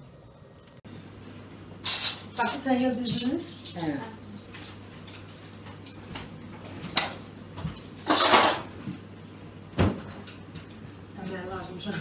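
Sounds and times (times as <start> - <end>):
dishes and cutlery clattering: 6.8 - 8.7.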